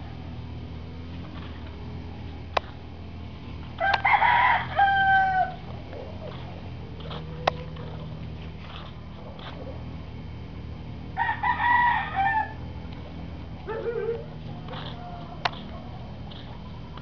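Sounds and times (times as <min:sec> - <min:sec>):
rooster crowing: 0:03.7 - 0:05.7, 0:11.1 - 0:12.8, 0:13.6 - 0:16.2.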